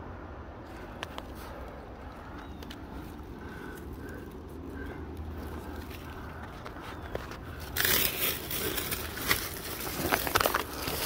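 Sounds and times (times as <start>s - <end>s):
low steady rumble: 0.0s - 11.0s
footsteps on dry leaves: 5.5s - 11.0s.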